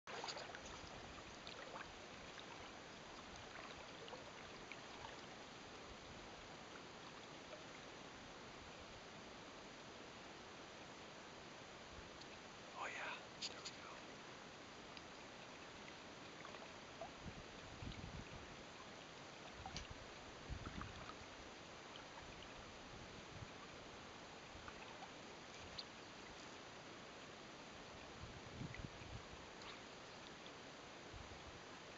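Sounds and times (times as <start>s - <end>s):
faint open-air hiss: 0.1s - 31.9s
light water sounds: 0.1s - 31.9s
light ticks: 12.1s - 12.4s, 14.9s - 17.1s, 19.6s - 19.9s.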